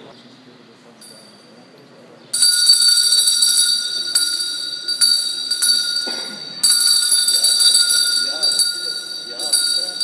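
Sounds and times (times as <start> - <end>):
metal hand bell ringing: 2.4 - 10.0.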